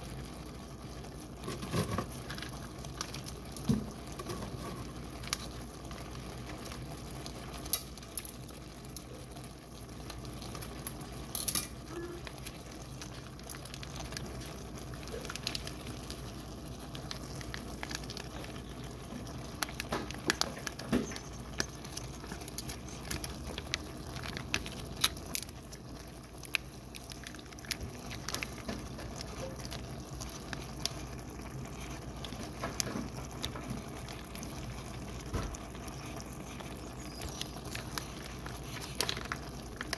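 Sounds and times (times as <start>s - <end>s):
food sizzling in a skillet: 28.4s - 39.9s.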